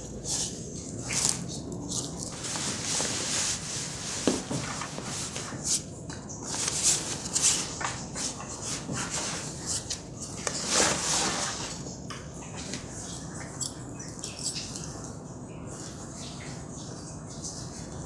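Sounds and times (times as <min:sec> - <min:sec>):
fabric rustling swishes: 0:02.3 - 0:05.8, 0:10.5 - 0:11.8.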